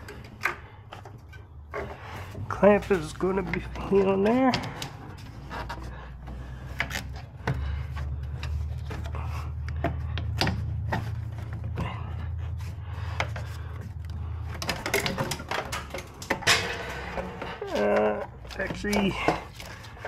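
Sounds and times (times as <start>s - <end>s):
clicks and knocks of rubber tube: 0.0s - 20.0s
steady low hum: 0.0s - 20.0s.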